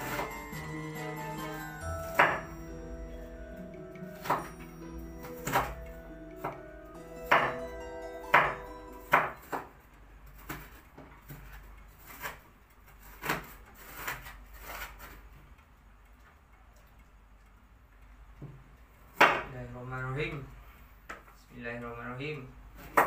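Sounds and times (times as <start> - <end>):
background music: 0.0 - 9.6.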